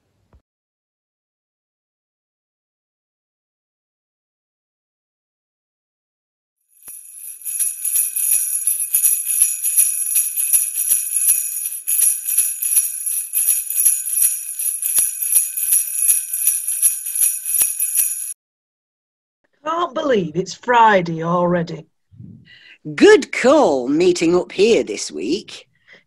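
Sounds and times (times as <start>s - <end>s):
sleigh bells jingling: 6.8s - 18.4s.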